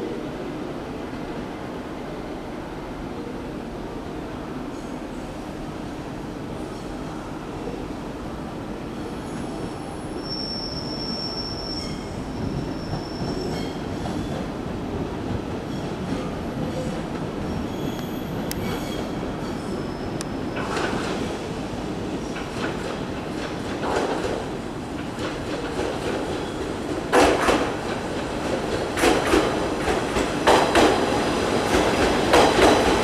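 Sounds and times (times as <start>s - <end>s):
train wheels squealing: 9.0s - 14.5s, 16.7s - 20.2s
train clattering over switches: 27.0s - 31.0s, 31.7s - 33.0s.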